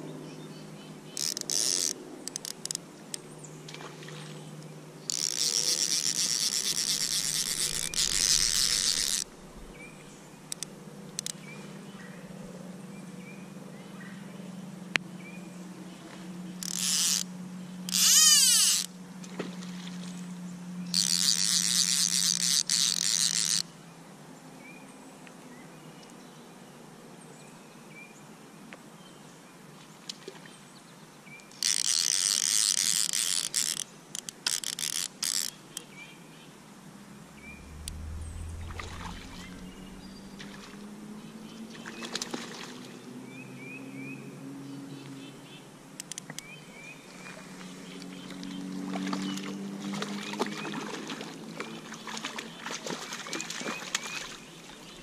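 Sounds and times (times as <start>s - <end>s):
creek ambience: 0.0s - 12.6s, 15.1s - 24.1s, 29.6s - 55.0s
fishing reel click drag buzzing: 1.1s - 3.2s, 5.1s - 9.4s, 10.5s - 11.4s, 16.6s - 19.0s, 20.9s - 23.7s, 31.5s - 35.8s
light splash on water: 41.7s - 43.0s, 48.3s - 54.9s.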